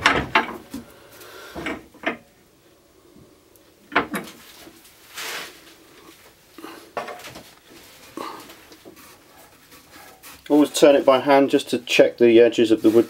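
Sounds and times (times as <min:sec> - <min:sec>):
metal clunks and knocks: 0:00.0 - 0:00.9, 0:01.6 - 0:02.3, 0:03.9 - 0:04.4.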